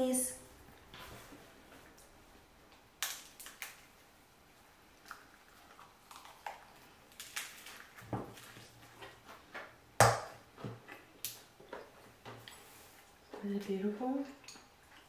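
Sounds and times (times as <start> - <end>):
lettuce crunching: 5.0 - 9.3
wet chewing: 5.0 - 9.3, 10.7 - 15.0.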